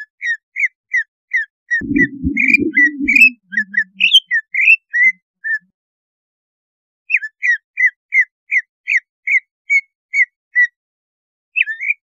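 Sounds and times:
bird whistling notes: 1.8s - 4.3s.

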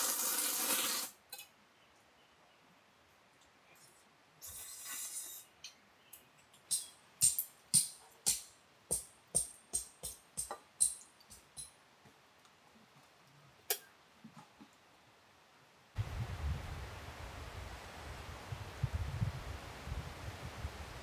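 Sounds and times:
hard objects clinking and tapping: 6.6s - 11.8s.

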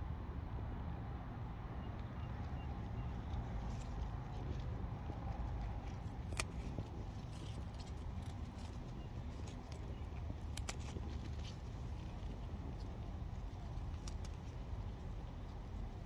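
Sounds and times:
steady low rumble: 0.0s - 16.0s
bean sprout stems snapping: 5.5s - 12.9s, 13.5s - 14.8s.

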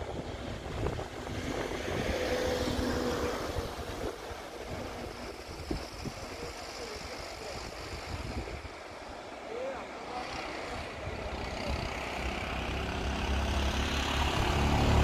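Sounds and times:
wind buffeting microphone: 0.0s - 9.1s
vehicle passing: 0.3s - 7.0s, 10.0s - 15.0s.

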